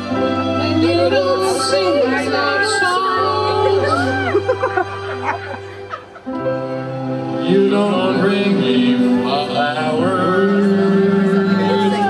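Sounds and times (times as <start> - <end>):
music with sustained chords: 0.0 - 12.0
men singing into microphones: 0.6 - 4.2, 7.4 - 12.0.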